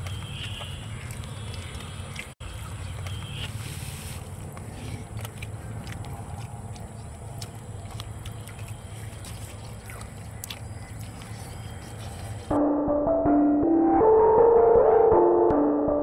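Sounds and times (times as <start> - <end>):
synthesizer background music: 12.5 - 16.0.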